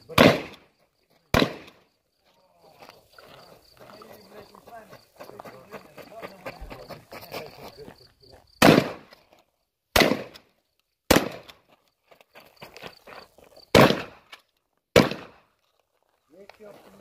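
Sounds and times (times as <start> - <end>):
shotgun shots with echo: 0.1 - 0.6, 1.3 - 1.8, 8.6 - 9.1, 9.9 - 10.4, 11.1 - 11.5, 13.7 - 14.2, 15.0 - 15.4.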